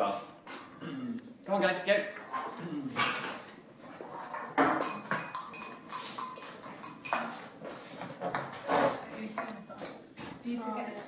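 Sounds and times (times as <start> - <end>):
glassware clinking: 4.6 - 7.6.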